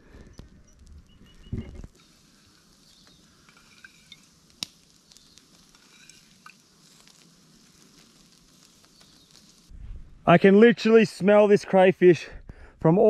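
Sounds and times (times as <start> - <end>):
crayfish sizzling on grill: 0.8 - 9.7
liquid pouring: 1.9 - 4.9, 5.5 - 8.3.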